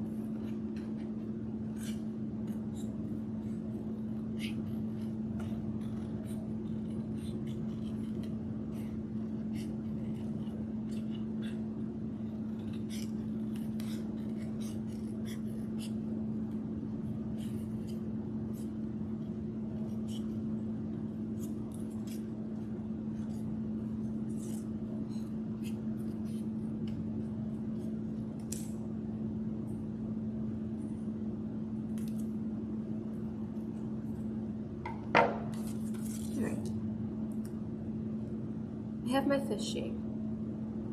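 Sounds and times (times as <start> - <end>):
steady low hum: 0.0 - 40.9
scissors snipping cardstock: 0.3 - 16.1, 21.2 - 28.8.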